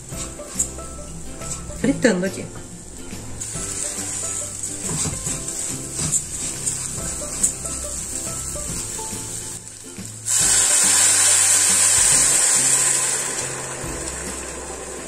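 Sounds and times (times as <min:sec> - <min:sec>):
rice sizzling in a pan: 0:00.0 - 0:01.8, 0:03.1 - 0:15.0
loud sizzle and hiss: 0:00.0 - 0:02.2, 0:02.8 - 0:15.0
water poured into hot pan: 0:03.4 - 0:15.0.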